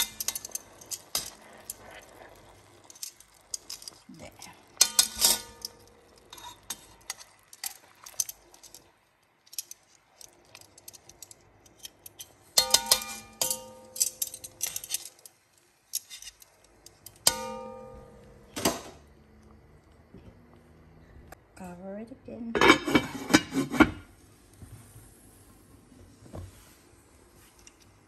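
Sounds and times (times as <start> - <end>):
metal tongs scraping a pot: 0.0 - 4.0, 4.7 - 8.9, 9.5 - 18.3
sharp knocks on a ringing pot: 12.6 - 14.1, 17.3 - 18.5.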